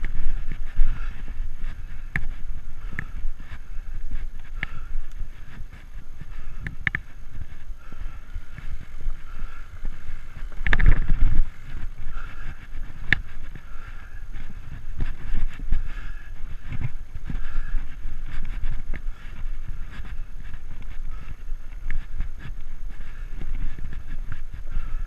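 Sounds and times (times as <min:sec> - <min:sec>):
bike tyres rumbling on dirt: 0:00.0 - 0:25.0
bike knocks and rattles: 0:06.2 - 0:20.2.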